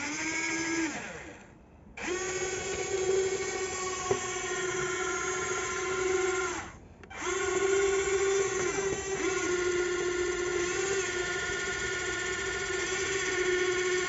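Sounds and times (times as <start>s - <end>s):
electric motor whining: 0.0s - 14.0s.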